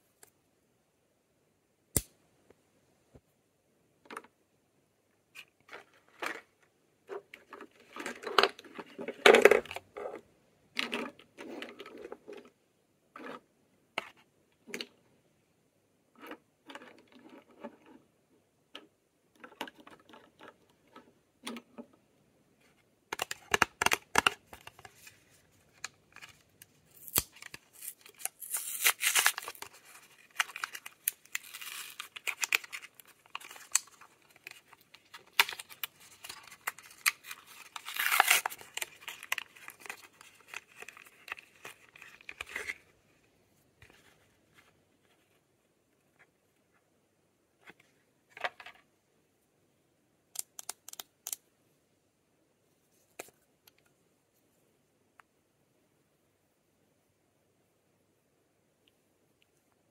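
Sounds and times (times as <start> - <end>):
packaging tearing and crinkling: 26.9 - 42.8.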